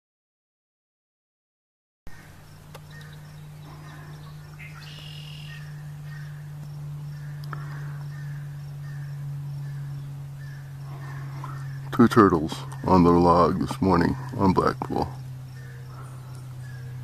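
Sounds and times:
birds calling: 2.1s - 17.0s
steady low hum: 2.1s - 17.0s
short bird chirps: 2.9s - 5.7s.

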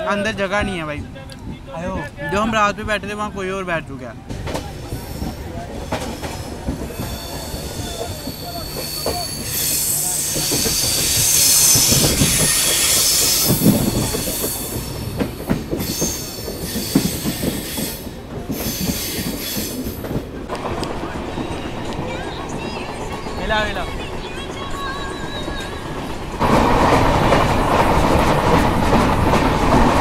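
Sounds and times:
train wheels rumbling and clattering: 4.2s - 30.0s
high-pitched wheel squeal: 6.0s - 15.0s, 15.8s - 18.0s.

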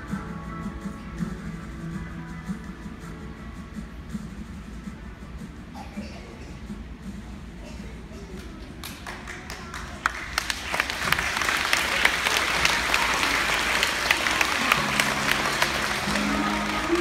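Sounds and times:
audience applauding: 8.4s - 17.0s
low musical notes: 14.2s - 17.0s.

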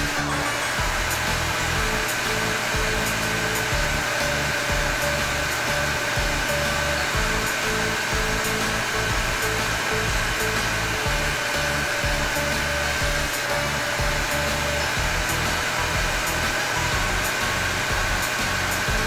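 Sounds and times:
toy hair dryer running: 0.0s - 19.0s.

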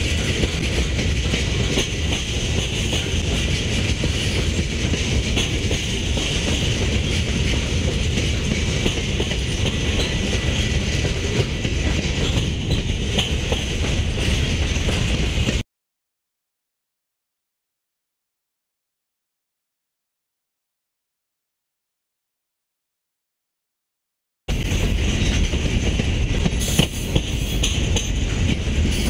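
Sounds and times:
freight train wheels rumbling on rails: 0.0s - 15.6s, 24.5s - 29.0s.

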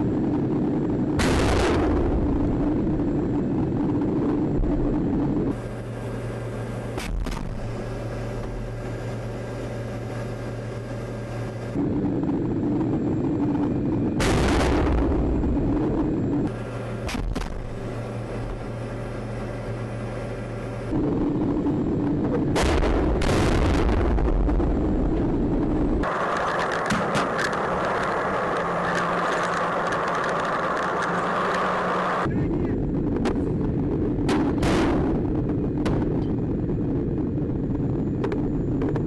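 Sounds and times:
tank engine running: 0.0s - 39.0s
tank gun blasts: 1.2s - 2.7s, 14.2s - 15.6s, 17.0s - 17.8s, 22.5s - 25.1s, 26.8s - 27.5s, 34.2s - 36.3s.

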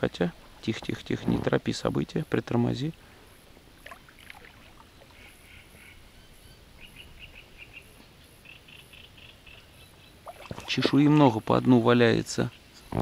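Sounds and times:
light water splashes: 2.8s - 5.4s, 10.2s - 11.4s
bird chirping: 4.8s - 11.1s.

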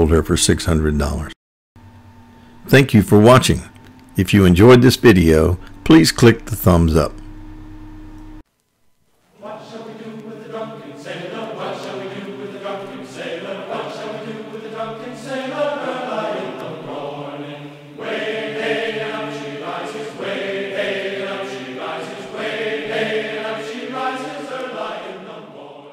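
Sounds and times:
chant-like choral singing: 9.3s - 25.9s.

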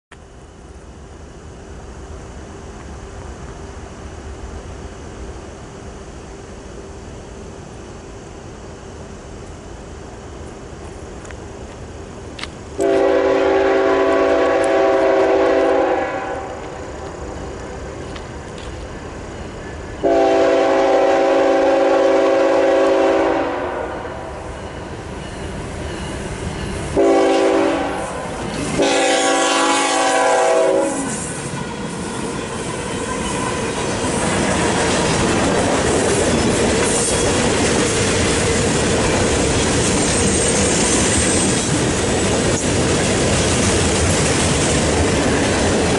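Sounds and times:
train wheels on rails: 0.1s - 45.9s
locomotive air horn: 12.8s - 16.7s, 20.0s - 24.3s, 27.0s - 31.6s.

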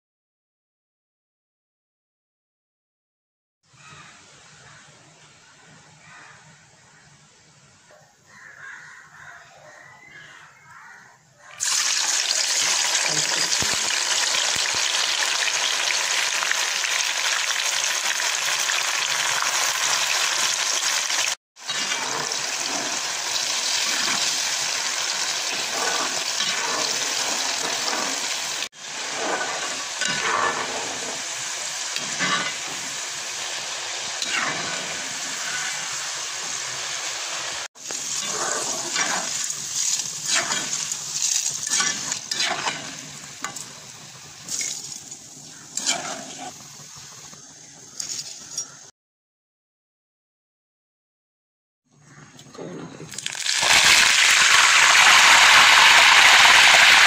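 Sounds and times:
food deep-frying in hot oil: 11.5s - 48.9s, 53.1s - 57.0s
metal spoon stirring in oil: 11.6s - 33.5s, 37.8s - 46.6s.

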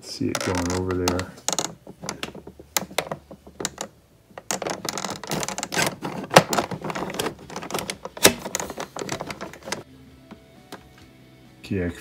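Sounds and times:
fingers rubbing on plastic: 0.3s - 9.8s
hard plastic clicks: 0.4s - 9.8s.

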